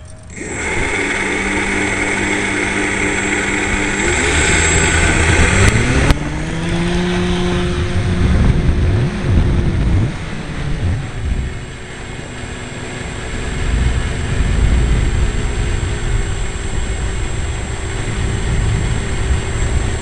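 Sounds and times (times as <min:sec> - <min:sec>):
electric motor and propeller: 0:00.0 - 0:20.0.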